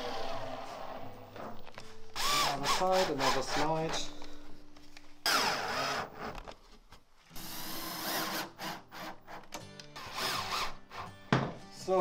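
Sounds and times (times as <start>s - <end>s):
cordless drill driving screws: 2.2s - 4.0s, 10.0s - 10.8s.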